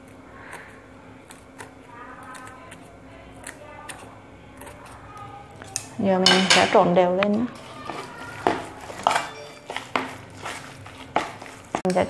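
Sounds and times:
scissors snipping: 0:00.0 - 0:05.9.

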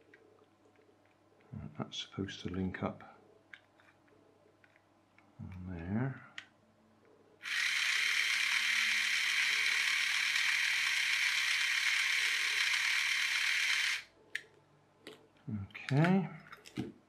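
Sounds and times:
toy train motor whirring: 0:07.4 - 0:14.1.

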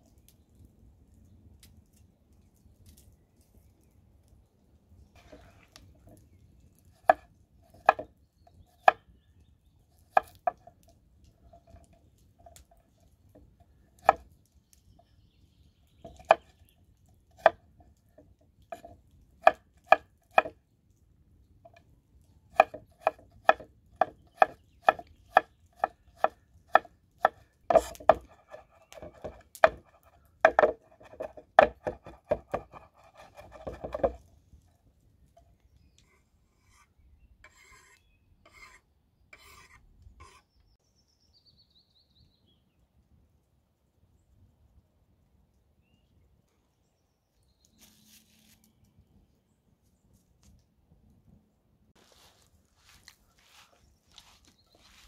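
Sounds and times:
knife chopping on wooden board: 0:07.0 - 0:08.1, 0:10.1 - 0:10.6, 0:17.4 - 0:17.6, 0:18.8 - 0:20.5, 0:22.5 - 0:34.2.

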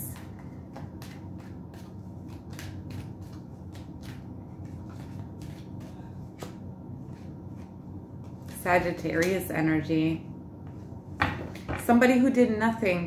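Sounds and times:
low steady hum: 0:00.0 - 0:13.0
cards being shuffled: 0:00.1 - 0:08.7.

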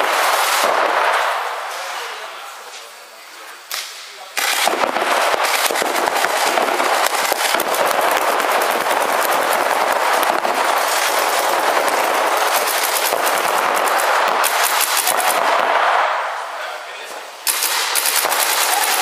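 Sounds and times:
paintball markers firing: 0:03.7 - 0:15.8, 0:17.5 - 0:19.0.

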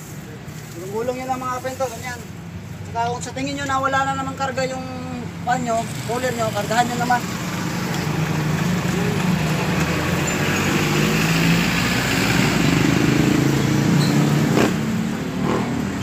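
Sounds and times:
engine-like hum: 0:02.9 - 0:16.0.

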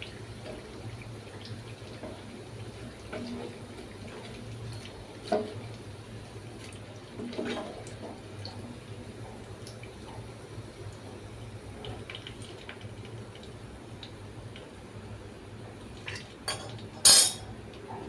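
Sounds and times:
hot oil bubbling: 0:00.0 - 0:18.0
metal skimmer clinking: 0:16.5 - 0:17.4.

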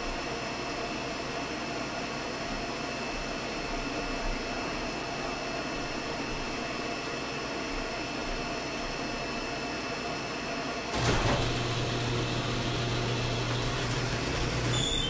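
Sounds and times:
steady background hum: 0:00.0 - 0:15.0
motor low hum: 0:10.9 - 0:15.0.

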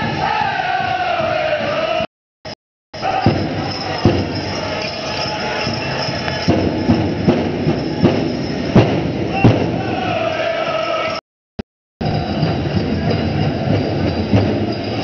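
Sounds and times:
people singing: 0:00.0 - 0:02.1, 0:03.0 - 0:06.7, 0:09.3 - 0:11.2
hall din: 0:03.0 - 0:10.5
big drum thumping: 0:03.1 - 0:04.7, 0:05.8 - 0:10.2.

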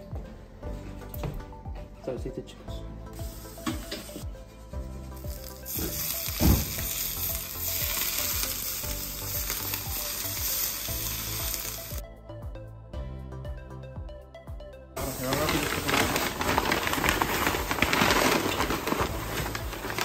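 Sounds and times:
hot oil sizzling: 0:05.2 - 0:12.0
thump: 0:06.4 - 0:06.8.

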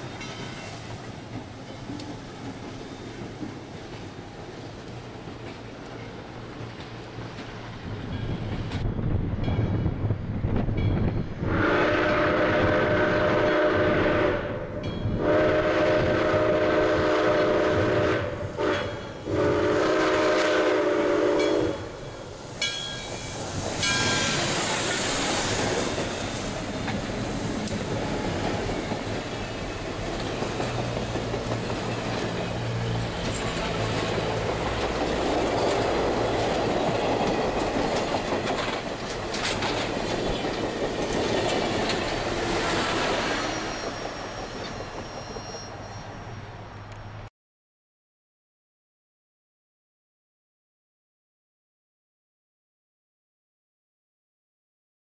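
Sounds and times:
train cars rumbling and clattering: 0:00.0 - 0:47.0
locomotive passing rush: 0:00.0 - 0:47.2
steam locomotive whistle: 0:11.4 - 0:22.0.

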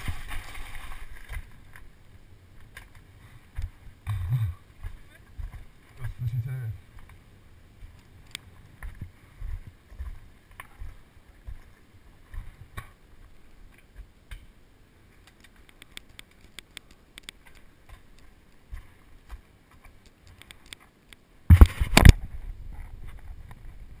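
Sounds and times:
bike rolling over gravel: 0:00.0 - 0:01.9
knocking and rubbing on microphone: 0:21.5 - 0:23.8.

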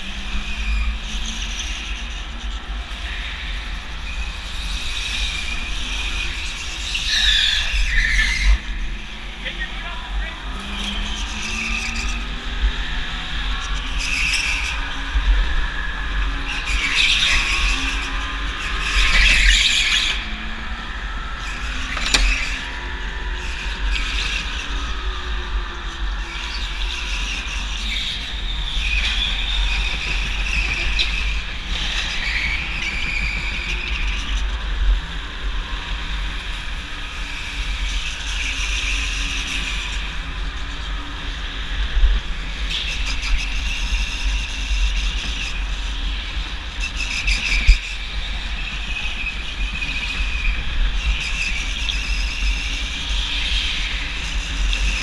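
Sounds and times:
go-kart tyres squealing: 0:00.0 - 0:55.0.

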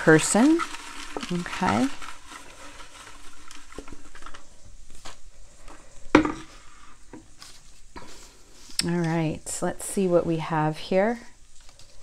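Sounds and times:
paper pieces rattling in pitcher: 0:00.0 - 0:04.6.

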